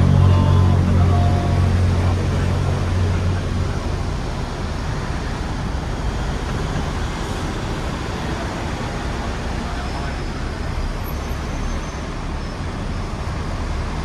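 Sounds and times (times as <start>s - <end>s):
deep hum: 0.0s - 4.8s
street traffic: 0.0s - 14.0s
tram rumbling: 0.0s - 14.0s.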